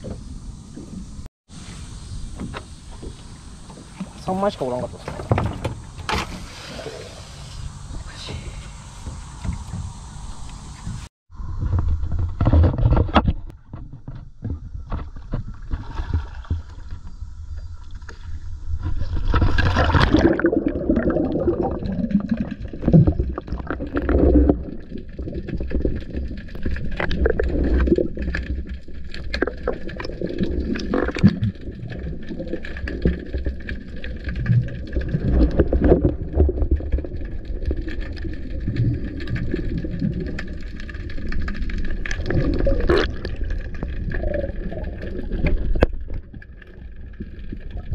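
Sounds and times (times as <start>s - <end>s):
underwater rumble and gurgle: 0.0s - 1.3s, 3.0s - 47.9s
water splashing: 15.5s - 17.1s, 18.8s - 47.9s.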